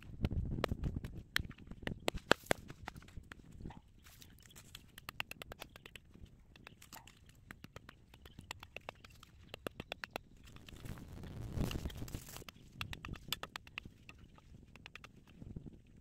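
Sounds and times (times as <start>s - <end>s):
clay clods crunching: 0.6s - 15.4s
rustle: 10.6s - 12.5s.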